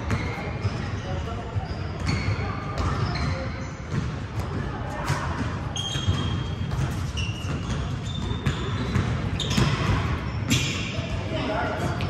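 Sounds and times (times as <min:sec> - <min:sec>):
sneakers squeaking on court: 0:00.0 - 0:12.0
basketball bouncing on hardwood: 0:06.0 - 0:10.0.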